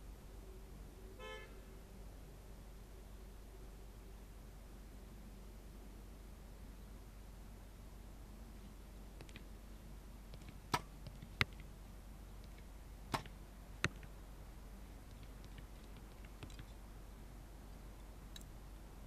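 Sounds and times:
arrow striking target: 0:10.4 - 0:11.6, 0:12.5 - 0:14.1.

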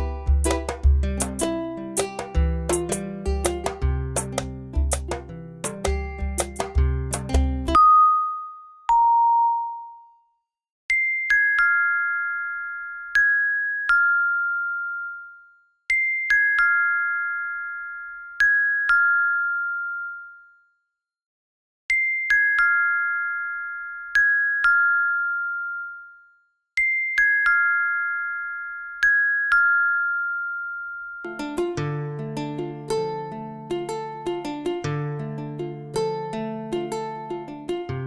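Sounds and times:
bell-like chime music: 0:07.7 - 0:20.8, 0:21.9 - 0:31.9.

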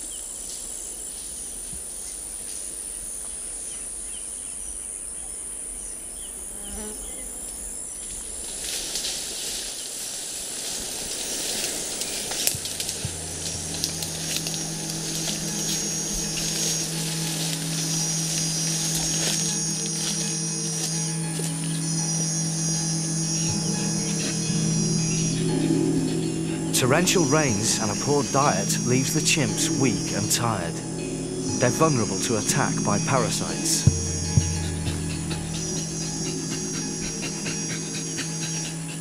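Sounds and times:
insects trilling: 0:00.0 - 0:39.0
low steady hum: 0:11.6 - 0:39.0.

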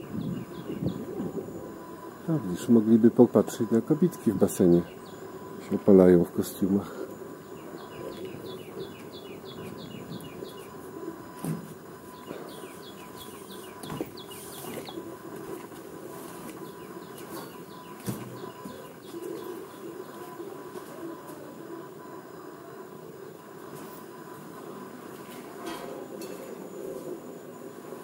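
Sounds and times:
bird chirping: 0:00.0 - 0:01.2, 0:03.6 - 0:05.6, 0:07.4 - 0:10.8, 0:12.1 - 0:15.1, 0:16.6 - 0:20.3
low background murmur: 0:00.0 - 0:28.0.

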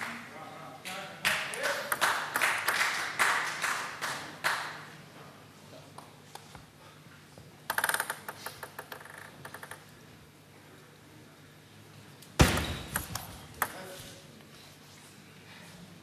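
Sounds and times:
table tennis ball clicking: 0:07.7 - 0:09.9, 0:12.9 - 0:13.8.

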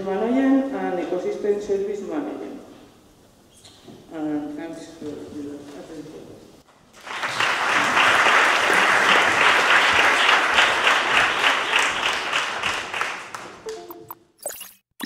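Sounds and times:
audience applauding: 0:07.0 - 0:13.9.

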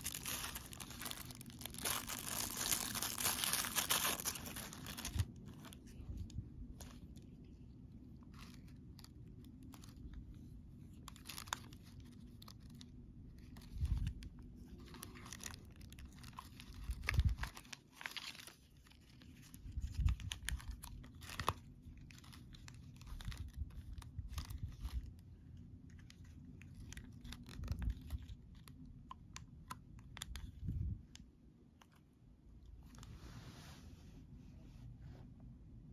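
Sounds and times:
plastic packaging crinkling: 0:00.0 - 0:07.4, 0:08.1 - 0:25.3, 0:25.9 - 0:28.9.

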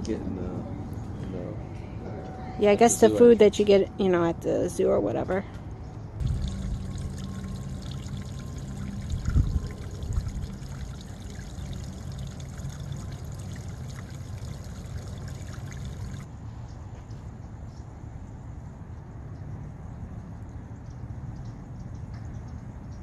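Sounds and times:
water splashing over small waterfall: 0:06.2 - 0:16.3.

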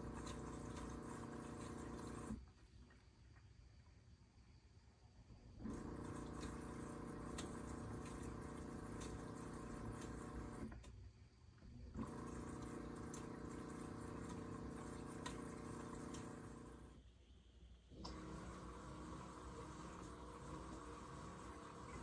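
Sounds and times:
water splashing in a drum: 0:00.0 - 0:02.4, 0:05.7 - 0:10.8, 0:12.0 - 0:16.8
washing machine pump humming: 0:00.0 - 0:03.5, 0:05.3 - 0:22.0.

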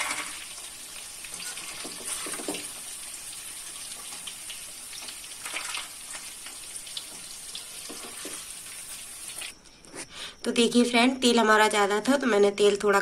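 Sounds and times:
metal spoon moving through oil: 0:00.0 - 0:09.5
food sizzling in hot oil: 0:00.0 - 0:09.6.

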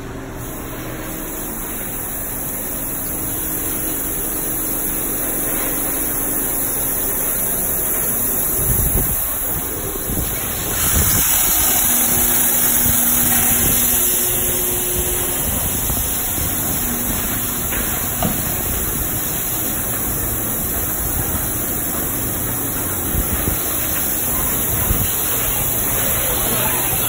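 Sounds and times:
low machinery hum: 0:00.0 - 0:27.0
water and foam spraying: 0:00.5 - 0:27.0.

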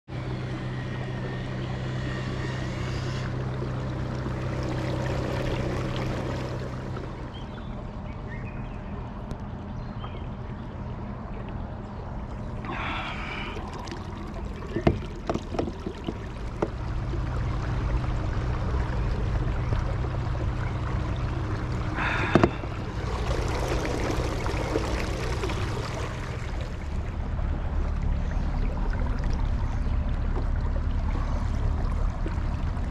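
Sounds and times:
water rushing past hull: 0:00.1 - 0:08.0, 0:12.2 - 0:32.9
electric motor humming: 0:00.2 - 0:04.6
sharp knocks: 0:22.2 - 0:22.7.

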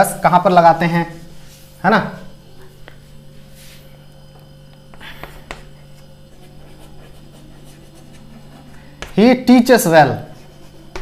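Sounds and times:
low steady hum: 0:00.0 - 0:11.0
chalk scraping on chalkboard: 0:05.5 - 0:09.3, 0:10.2 - 0:11.0.

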